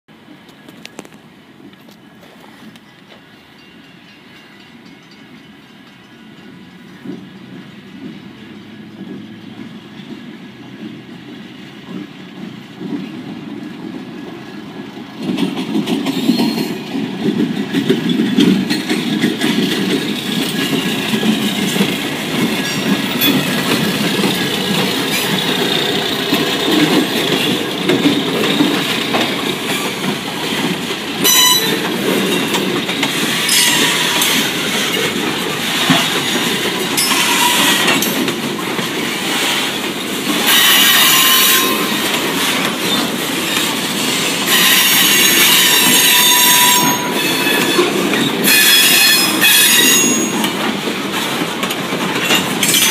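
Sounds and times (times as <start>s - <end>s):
diesel locomotive rumbling: 0.1s - 52.9s
wheels clicking over rail joints: 0.4s - 52.9s
wheels squealing against rails: 15.8s - 51.4s, 52.0s - 52.9s.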